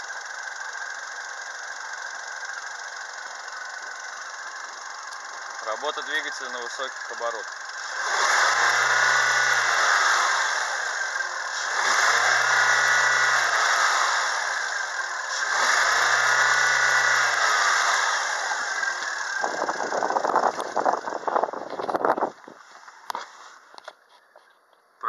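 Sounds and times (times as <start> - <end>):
car engine revving: 3.0 - 22.2.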